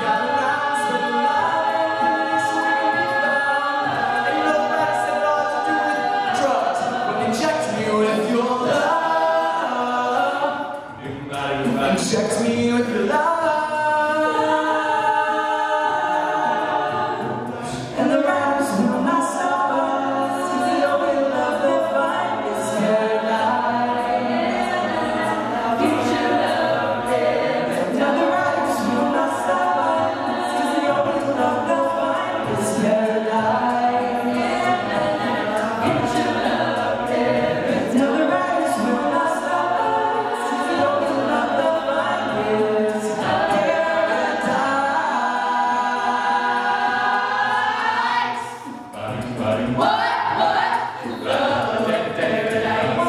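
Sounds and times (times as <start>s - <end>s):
male soloist singing: 0.0s - 16.6s, 37.6s - 46.1s
a cappella choir singing: 0.0s - 53.0s
steady beat: 0.0s - 53.0s.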